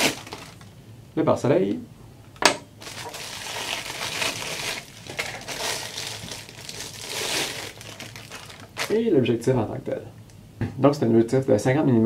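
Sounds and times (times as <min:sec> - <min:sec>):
plastic bag crinkling: 0:00.0 - 0:00.7, 0:02.8 - 0:09.1.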